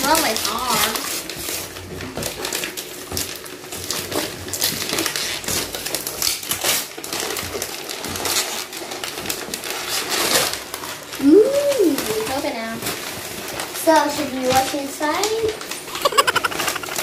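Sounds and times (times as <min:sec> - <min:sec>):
wrapping paper crinkling and tearing: 0:00.0 - 0:17.0.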